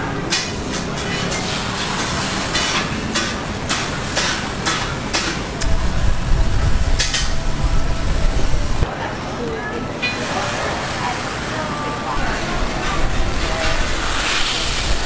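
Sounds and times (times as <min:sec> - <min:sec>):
street stall background noise: 0:00.0 - 0:15.0
batter sizzling on griddle: 0:00.3 - 0:08.8, 0:10.2 - 0:15.0
low rumble: 0:05.6 - 0:08.9.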